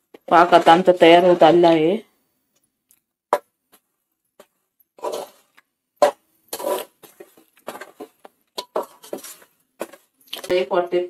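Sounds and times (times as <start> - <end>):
metal spoon scraping a pot: 4.4 - 10.5.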